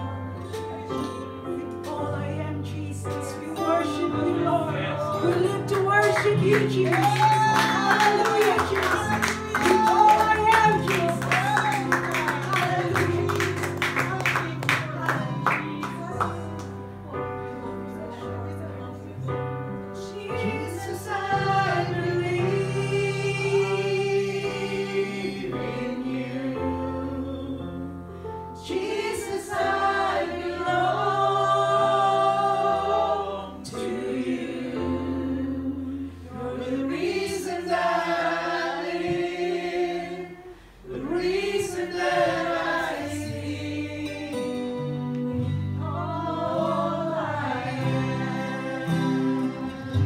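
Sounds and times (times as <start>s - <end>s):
woman singing into a microphone: 1.8s - 13.4s.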